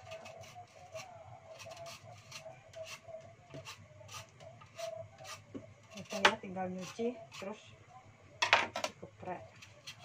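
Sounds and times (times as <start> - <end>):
vegetable peeler scraping: 0.0 - 7.6, 9.6 - 10.0.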